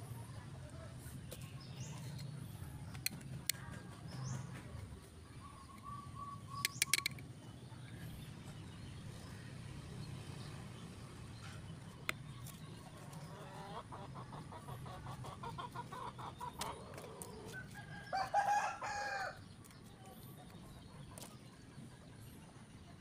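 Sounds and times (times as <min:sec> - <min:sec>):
chickens clucking: 0:11.4 - 0:17.8.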